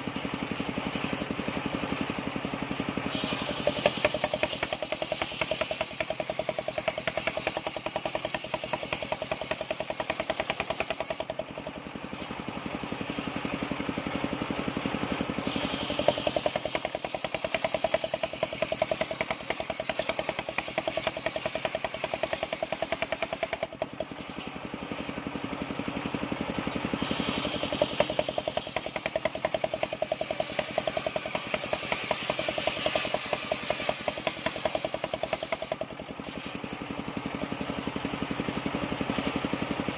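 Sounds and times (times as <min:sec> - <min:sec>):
engine running with rapid pulse: 0:00.0 - 0:39.9
saw blade cutting timber: 0:03.1 - 0:11.7, 0:15.4 - 0:24.1, 0:26.7 - 0:36.7.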